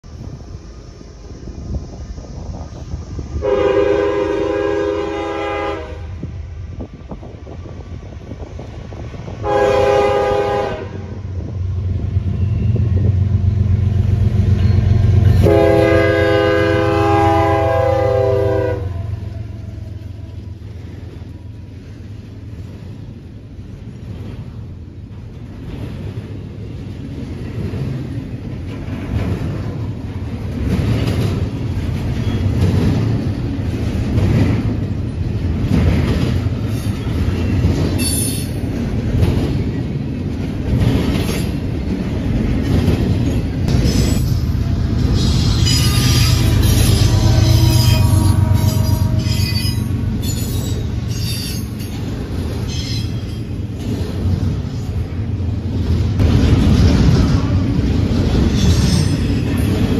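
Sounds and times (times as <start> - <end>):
diesel locomotive engine rumble: 0.0 - 59.9
locomotive air horn: 3.4 - 6.3, 9.4 - 11.2, 15.3 - 20.5, 45.1 - 49.9
train wheels clacking on rails: 11.4 - 59.9.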